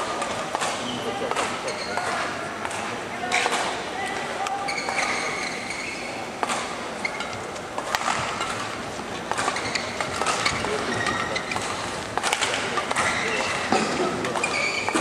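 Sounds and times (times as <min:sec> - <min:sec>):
hubbub of voices: 0:00.0 - 0:15.0
shoe squeaks on court floor: 0:01.6 - 0:02.1, 0:04.6 - 0:06.3, 0:07.0 - 0:07.5, 0:09.4 - 0:11.9, 0:13.0 - 0:13.7, 0:14.4 - 0:15.0.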